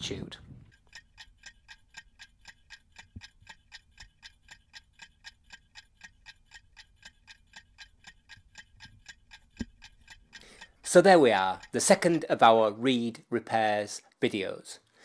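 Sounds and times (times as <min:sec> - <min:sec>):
clock ticking quickly: 0:00.0 - 0:13.8.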